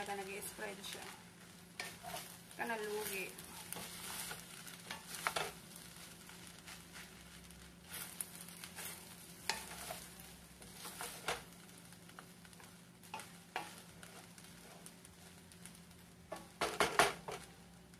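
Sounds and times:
soft frying sizzle: 0.0 - 17.9
wooden spatulas scraping metal pan: 1.8 - 7.2, 7.9 - 11.5, 13.1 - 14.9.

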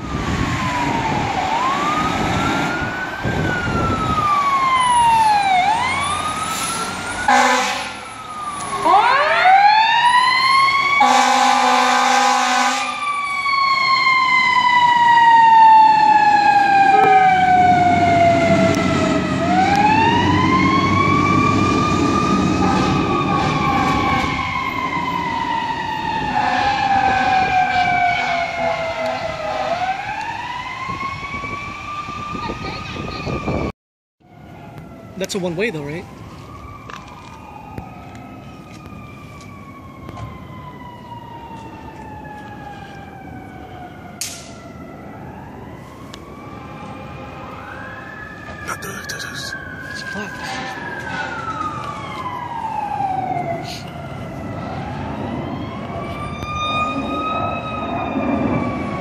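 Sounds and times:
fire truck siren wailing: 0.0 - 59.0
air horn blasts: 7.3 - 8.0, 11.0 - 13.0, 28.1 - 29.8.

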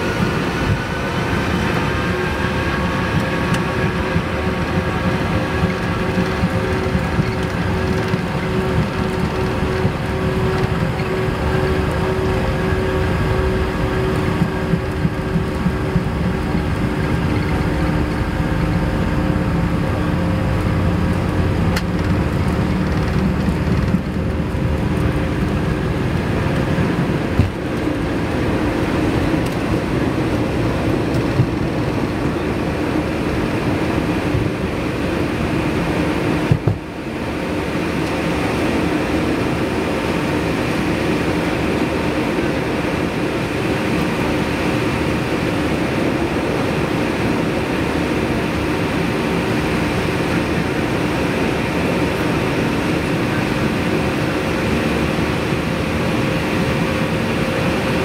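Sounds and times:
heavy rumble of takeoff roll: 0.0 - 58.0
jet engine whine: 0.0 - 58.0.

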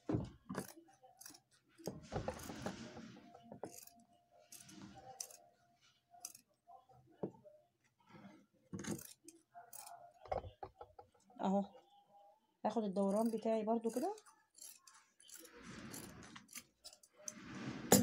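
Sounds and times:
scissors snipping fabric: 13.0 - 17.0.

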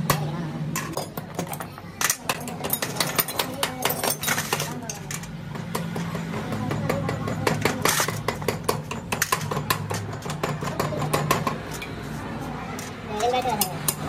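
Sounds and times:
small metal parts clinking: 0.8 - 5.4.

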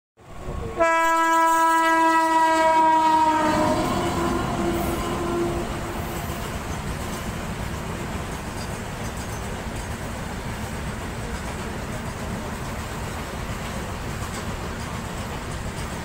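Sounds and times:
freight wagons rumbling over rails: 0.2 - 16.0
locomotive horn blast: 0.6 - 6.4.

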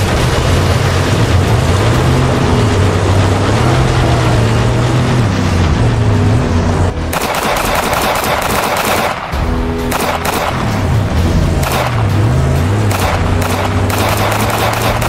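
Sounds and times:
vehicle engines droning: 0.0 - 15.0
machine-gun fire: 7.1 - 10.8, 11.6 - 12.1, 12.9 - 15.0.

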